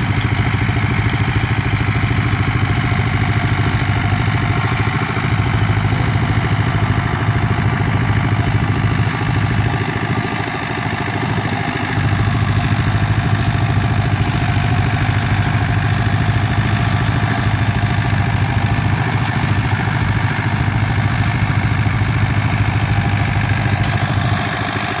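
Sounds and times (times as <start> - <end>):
tractor engine running: 0.0 - 25.0.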